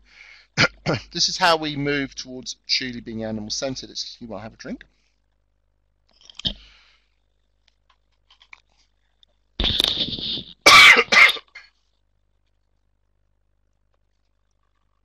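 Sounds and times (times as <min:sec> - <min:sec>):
man clearing his throat: 0:00.6 - 0:01.1, 0:09.6 - 0:11.8
man coughing: 0:00.6 - 0:01.1, 0:09.6 - 0:11.8.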